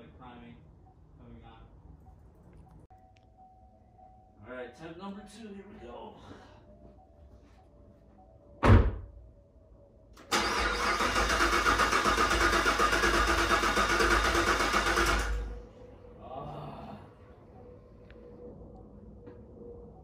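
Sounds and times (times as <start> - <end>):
sharp thump: 8.6 - 9.1
car starter cranking: 10.2 - 15.5.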